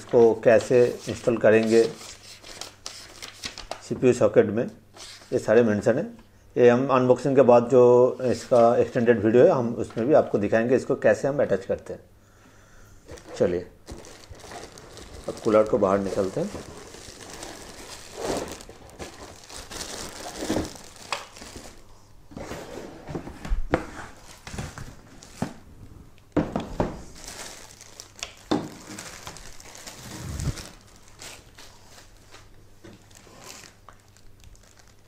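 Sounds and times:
packaging rustling and crinkling: 0:00.0 - 0:03.9, 0:13.1 - 0:22.6, 0:23.9 - 0:25.6, 0:26.5 - 0:35.0.

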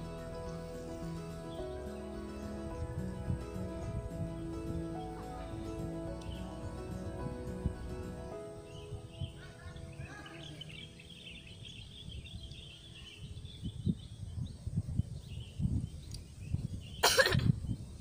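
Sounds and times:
background music: 0:00.0 - 0:13.1
small birds chirping: 0:00.0 - 0:18.0
wind buffeting microphone: 0:00.0 - 0:18.0.

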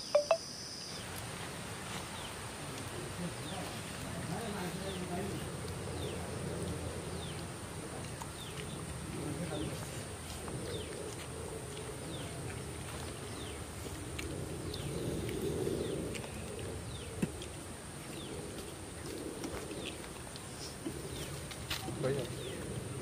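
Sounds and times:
birds chirping: 0:00.0 - 0:01.1.

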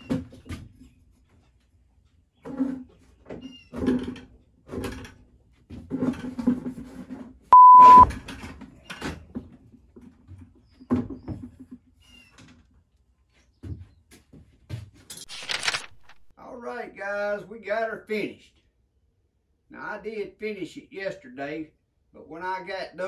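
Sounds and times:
censor bleep: 0:07.6 - 0:08.1.

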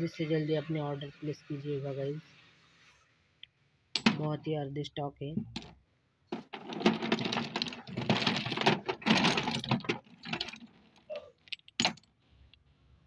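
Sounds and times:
clay biscuits clattering: 0:05.5 - 0:12.1.

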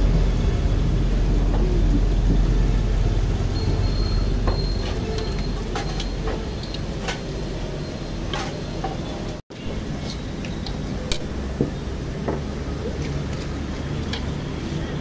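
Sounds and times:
deep-frying in hot oil: 0:00.0 - 0:15.0
wire skimmer clinking on pan: 0:03.8 - 0:07.3.

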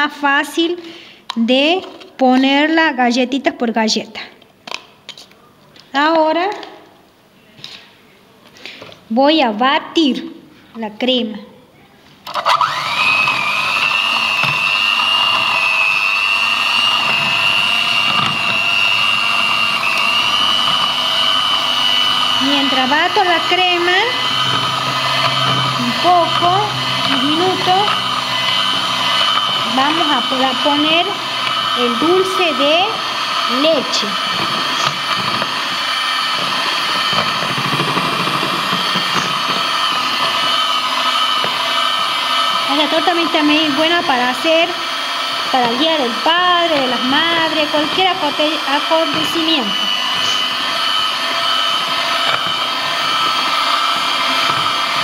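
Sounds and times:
electric hand mixer whine: 0:12.3 - 0:55.0.

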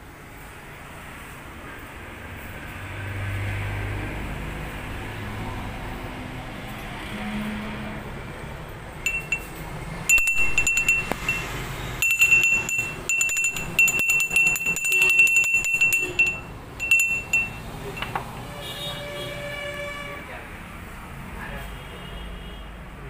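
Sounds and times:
clay bell ringing: 0:09.1 - 0:18.3.

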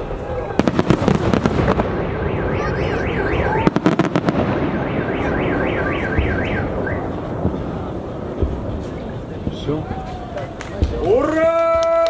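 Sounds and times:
firework bangs: 0:00.0 - 0:12.0
car alarm siren warbling: 0:01.9 - 0:07.3.

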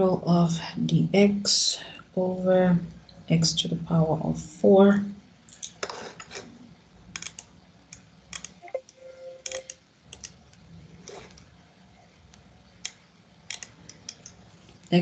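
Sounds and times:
computer keyboard typing: 0:07.2 - 0:07.5, 0:08.3 - 0:10.4, 0:12.9 - 0:14.4
faint tone: 0:08.6 - 0:09.7.

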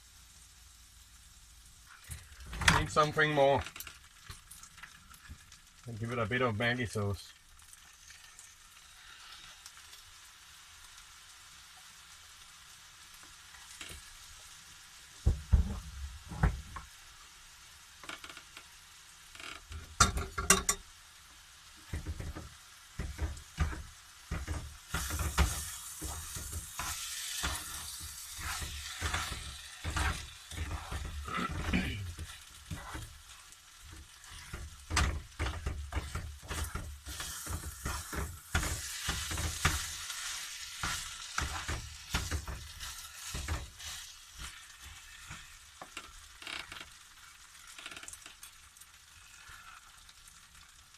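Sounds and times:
rice sizzling in a frying pan: 0:00.0 - 0:50.9
spatula knocking and scraping pan: 0:15.3 - 0:16.9, 0:19.8 - 0:20.8, 0:21.8 - 0:46.2.

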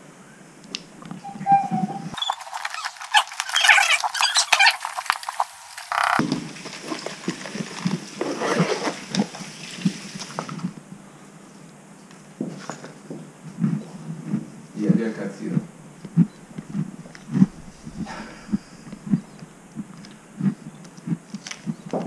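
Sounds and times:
cardboard and paper rustling: 0:02.2 - 0:10.7.

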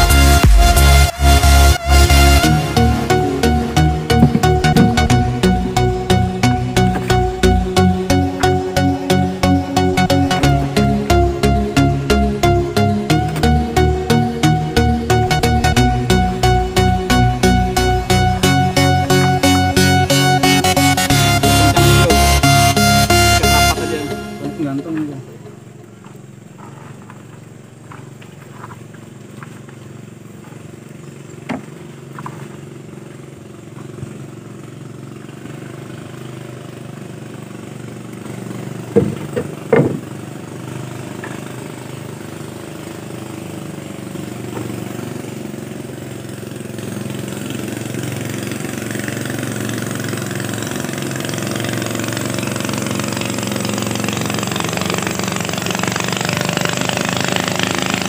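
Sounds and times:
small boat engine running: 0:00.0 - 0:58.0
sharp knocks: 0:04.1 - 0:05.2, 0:38.9 - 0:40.2.

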